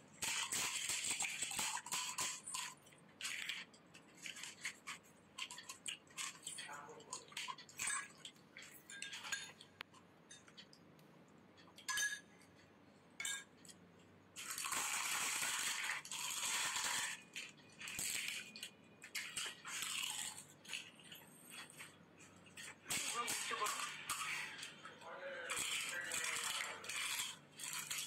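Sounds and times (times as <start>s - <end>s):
spoons clinking on glass bowls: 5.4s - 9.7s, 11.6s - 12.6s, 13.2s - 13.8s.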